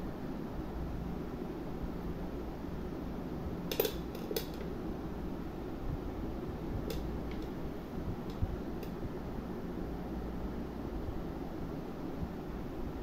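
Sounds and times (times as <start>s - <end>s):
background hum: 0.0s - 13.0s
scissors clicking on wooden table: 3.7s - 4.7s.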